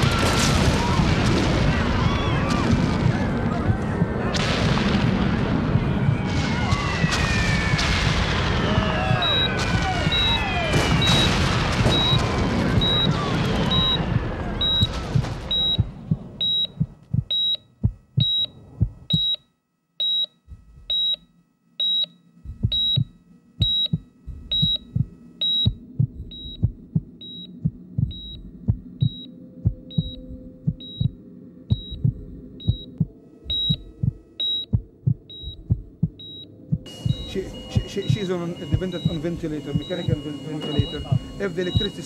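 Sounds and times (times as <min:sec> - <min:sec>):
low heartbeat thumps: 0:01.0 - 0:19.4, 0:20.5 - 0:21.2, 0:22.4 - 0:42.0
patient monitor beeping: 0:09.0 - 0:42.0.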